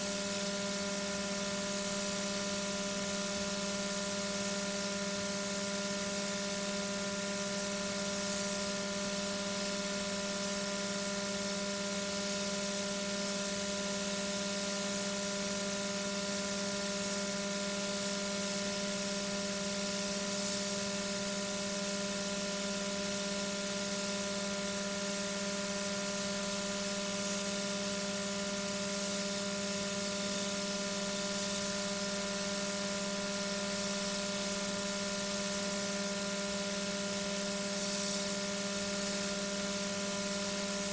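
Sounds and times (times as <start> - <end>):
even hiss: 37.6 - 39.5.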